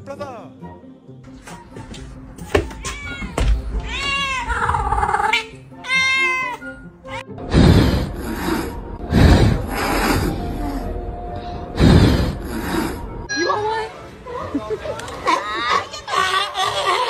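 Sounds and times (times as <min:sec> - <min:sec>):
cat meowing: 0:02.8 - 0:07.3.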